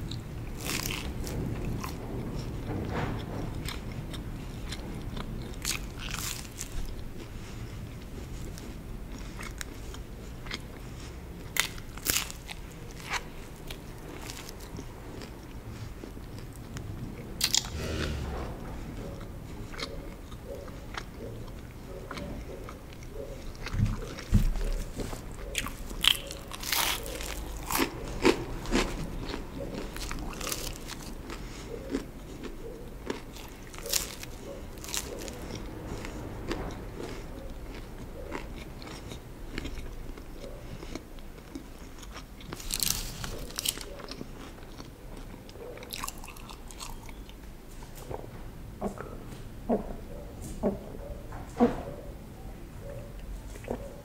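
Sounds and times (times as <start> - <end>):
chewing: 0.0 - 51.3, 52.8 - 54.0
pizza crust crunching: 8.4 - 15.5, 23.6 - 36.2, 40.9 - 47.0.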